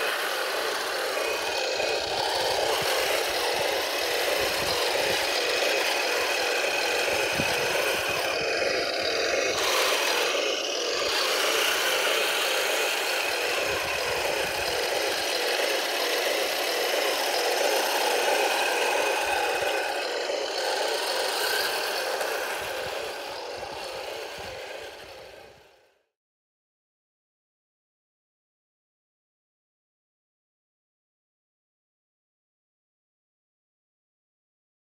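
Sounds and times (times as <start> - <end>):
toy tank gearbox whine: 0.0 - 26.0.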